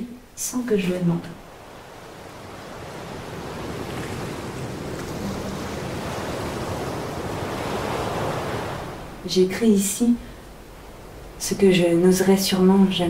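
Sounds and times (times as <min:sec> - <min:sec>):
steady rushing noise: 0:01.4 - 0:09.4.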